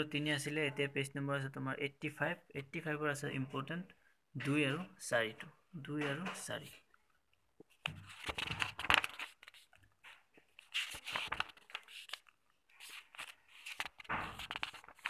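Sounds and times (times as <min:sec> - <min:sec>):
paper pages turning: 0:07.6 - 0:15.0.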